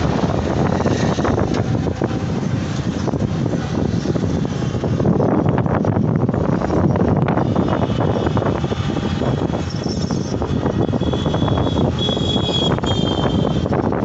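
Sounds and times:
vehicle and road noise: 0.0s - 14.0s
wind buffeting microphone: 0.0s - 14.0s.

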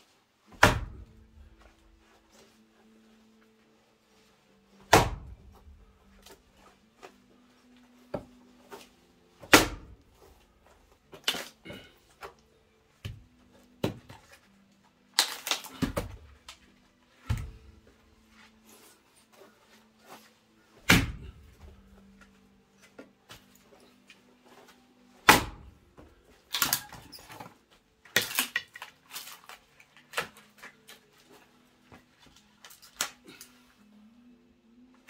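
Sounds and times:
axe splitting wood: 0.5s - 1.1s, 4.9s - 5.4s, 9.4s - 10.0s, 15.2s - 16.2s, 20.8s - 21.3s, 25.2s - 25.7s.

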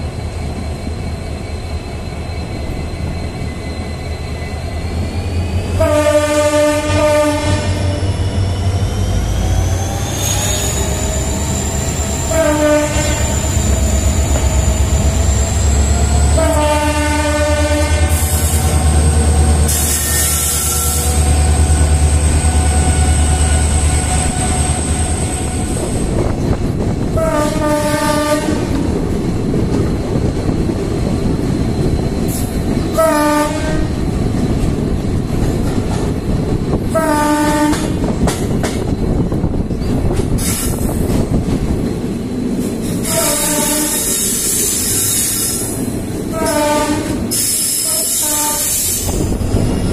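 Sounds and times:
locomotive horn blasts: 5.8s - 8.0s, 12.3s - 13.4s, 16.3s - 18.4s, 27.1s - 28.8s, 33.0s - 33.9s, 36.9s - 37.9s, 43.0s - 44.1s, 46.3s - 48.9s
train wheels clattering on rails: 17.7s - 49.9s.

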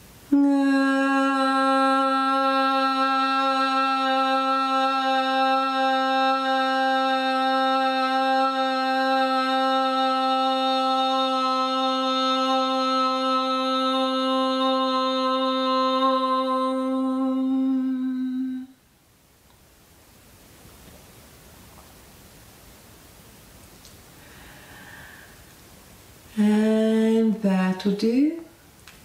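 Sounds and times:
woman chanting om: 0.3s - 18.8s, 26.3s - 28.4s.

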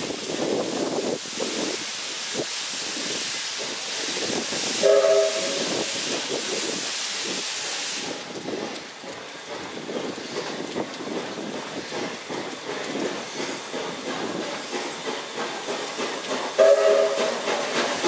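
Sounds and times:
steam locomotive hissing: 0.0s - 18.0s
engine running on rails: 3.6s - 18.0s
steam whistle blast: 4.8s - 6.0s, 16.6s - 17.5s.

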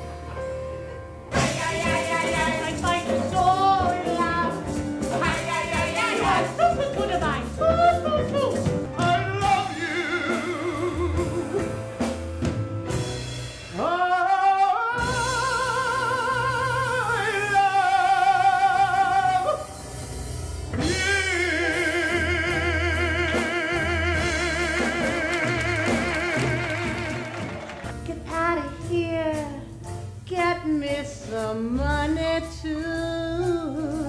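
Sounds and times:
live band accompaniment: 0.0s - 34.0s
man singing operatically: 5.9s - 11.6s, 13.7s - 19.7s, 20.8s - 27.5s.

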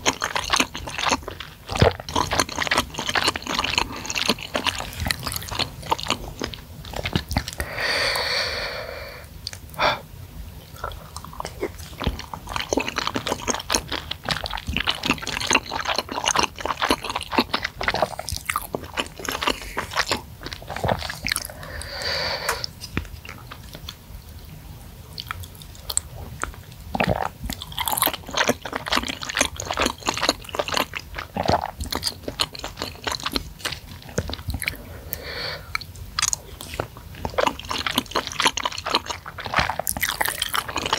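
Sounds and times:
wet chewing and biting: 0.0s - 7.7s, 10.7s - 24.0s, 25.2s - 40.9s.

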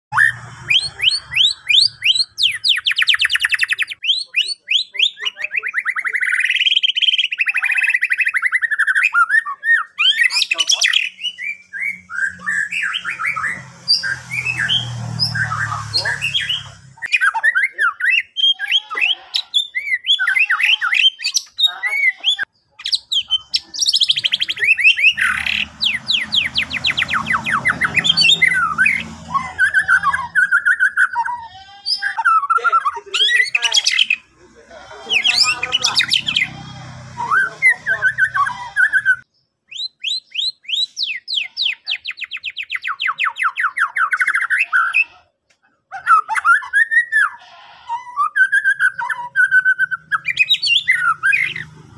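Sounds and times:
bird singing whistled song: 0.1s - 18.9s, 22.9s - 32.6s, 37.2s - 44.6s, 48.0s - 51.6s.

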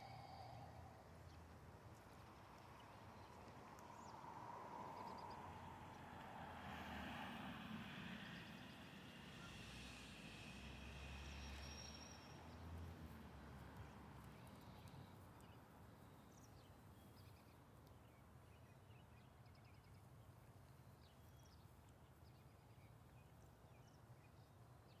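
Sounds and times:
faint outdoor hum: 0.0s - 25.0s
small birds chirping: 13.8s - 25.0s.

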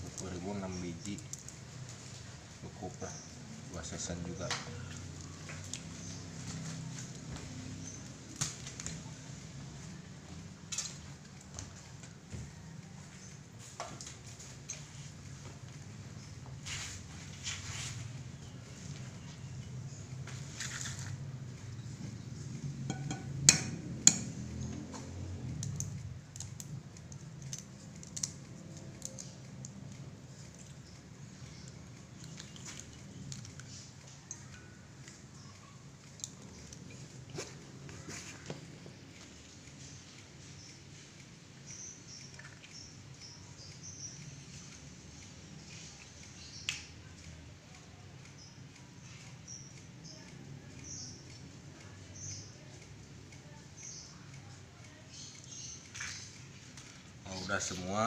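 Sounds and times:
small birds chirping: 0.0s - 58.0s
egg tapped on a plate: 22.9s - 24.3s
eggshell clicking: 22.9s - 24.5s
egg shell crackling as peeled: 25.6s - 29.9s.

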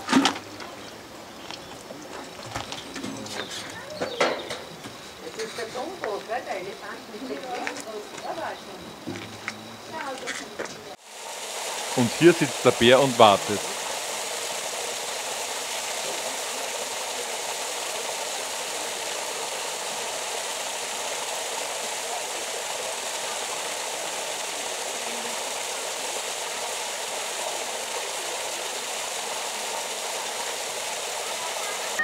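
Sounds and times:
water pouring into a pool: 11.0s - 32.0s.

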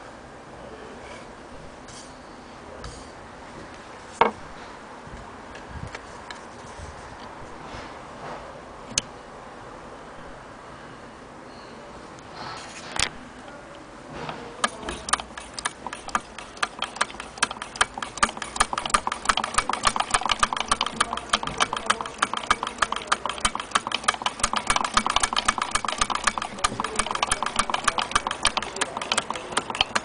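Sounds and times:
sewing machine clicking: 14.6s - 30.0s
sharp click: 14.6s - 30.0s.

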